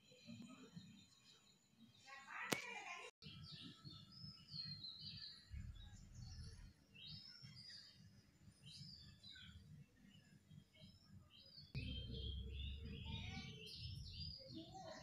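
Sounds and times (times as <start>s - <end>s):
faint birdsong: 0.0s - 15.0s
low rumble of wind: 5.5s - 6.7s, 11.8s - 14.3s.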